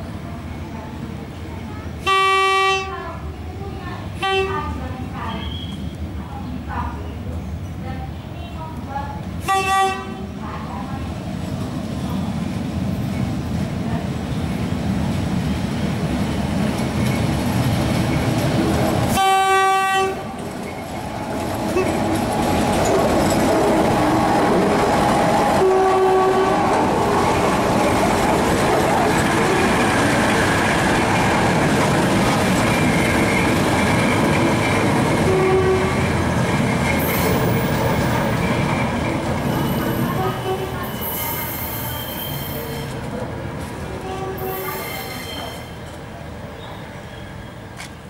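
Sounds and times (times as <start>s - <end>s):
railbus engine running: 0.0s - 48.0s
wheels clacking over rail joints: 16.5s - 40.1s
high-pitched wheel squeal: 40.8s - 43.0s, 44.4s - 45.8s.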